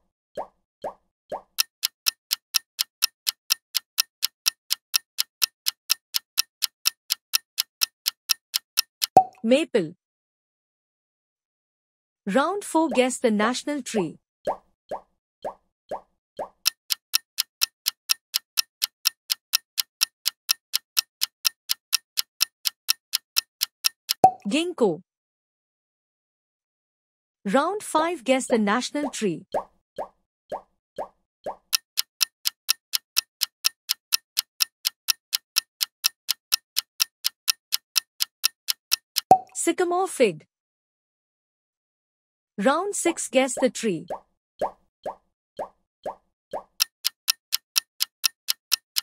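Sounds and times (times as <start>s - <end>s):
clock ticking quickly: 1.4s - 9.3s, 16.4s - 24.4s, 31.5s - 39.4s, 46.6s - 49.0s.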